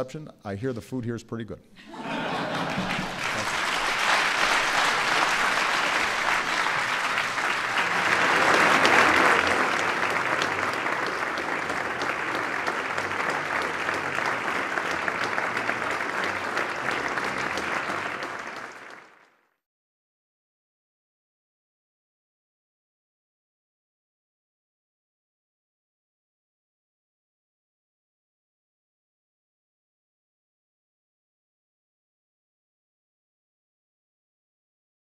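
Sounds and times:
audience applauding: 1.9 - 19.4.

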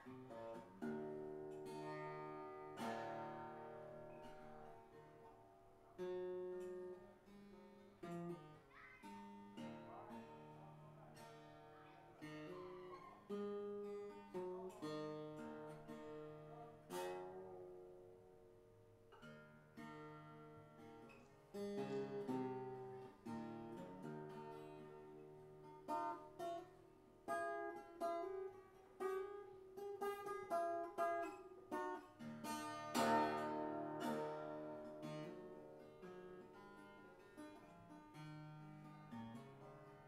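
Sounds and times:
acoustic guitar plucking and strumming: 0.0 - 40.0.

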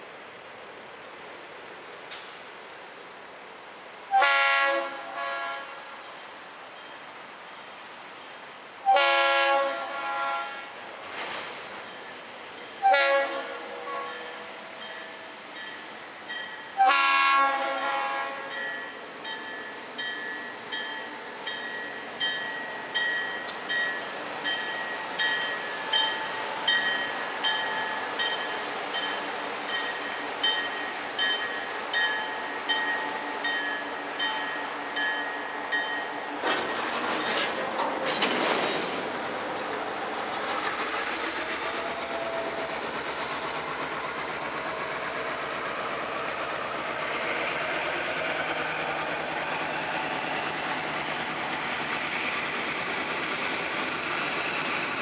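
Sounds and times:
locomotive air horn blasts: 4.1 - 6.0, 8.8 - 10.7, 12.8 - 14.5, 16.8 - 18.6
train wheels clacking on rails: 17.7 - 55.0
crossing warning bell dinging: 17.8 - 37.4.

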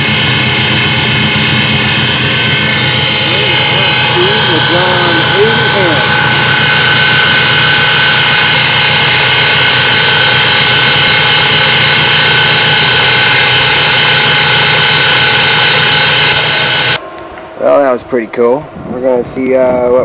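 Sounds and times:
electric outboard motor whining: 0.0 - 17.0.

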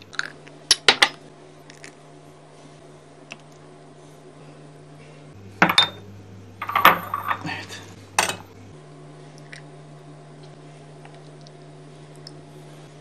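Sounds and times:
steady low hum: 0.0 - 13.0
cups clinking on stone countertop: 5.6 - 6.0, 6.6 - 8.5.

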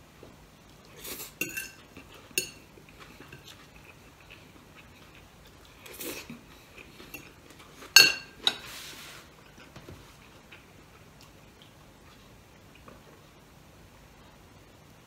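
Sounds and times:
fork clinking against plate: 1.4 - 2.7, 7.1 - 8.6.

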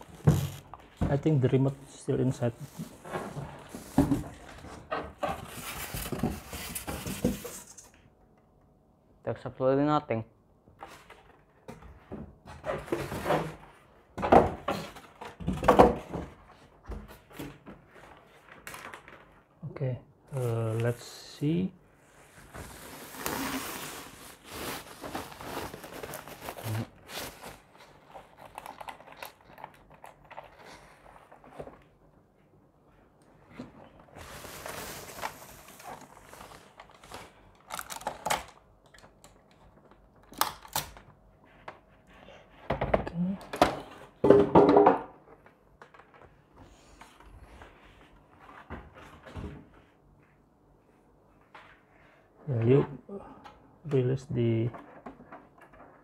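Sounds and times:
plastic wrapping rustling: 22.4 - 31.5, 34.0 - 38.6
plastic casing knocks and thunks: 42.7 - 45.1.

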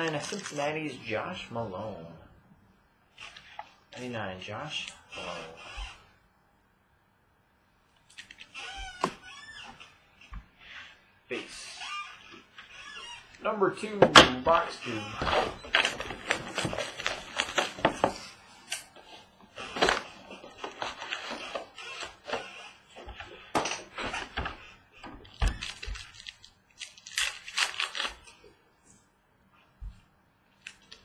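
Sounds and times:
foil packs crinkling: 0.0 - 0.7, 14.9 - 18.3, 19.6 - 22.5, 25.3 - 28.4.

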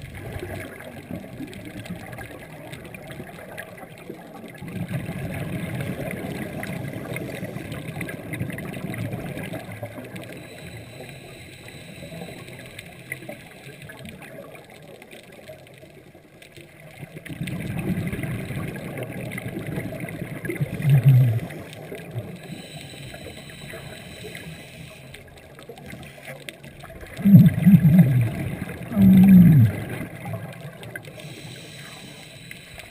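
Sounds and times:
scuba regulator bubbling exhalations: 17.3 - 25.0, 25.7 - 32.9.

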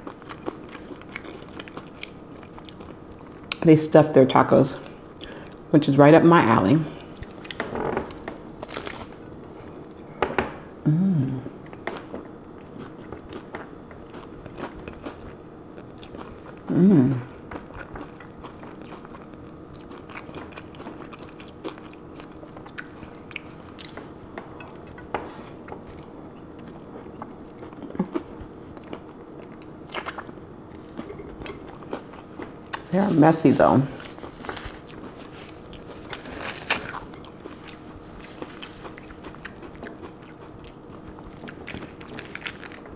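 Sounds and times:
crunching and chewing taco: 0.0 - 3.7, 6.9 - 10.8, 11.5 - 42.9
person humming: 10.8 - 11.6, 16.7 - 17.3.

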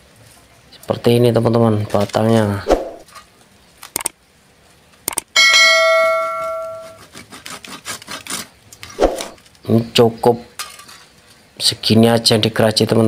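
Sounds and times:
saw blade ringing: 5.4 - 7.0
hand saw sawing wood: 6.8 - 9.4.

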